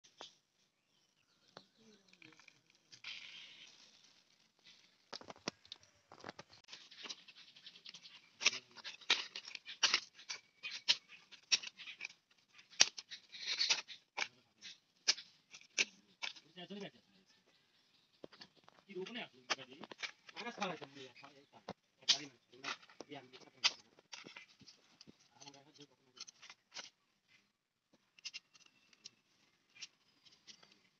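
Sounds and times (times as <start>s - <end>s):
leaves rustling: 1.8s - 16.7s.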